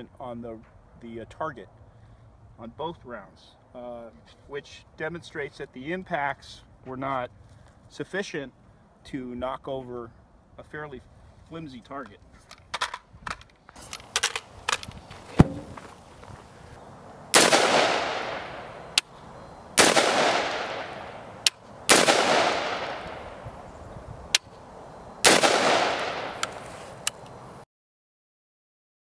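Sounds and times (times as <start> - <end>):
rifle shots with echo: 17.3 - 19.1, 19.8 - 23.5, 25.2 - 26.7
short sharp cracks: 17.3 - 19.1, 19.8 - 23.4, 25.2 - 27.4.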